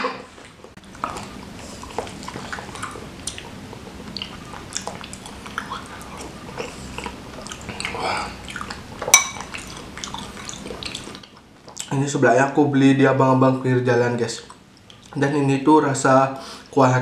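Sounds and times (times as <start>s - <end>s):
wet chewing: 0.4s - 11.9s, 14.4s - 15.2s
metal spoon clinking on bowl: 9.1s - 9.5s.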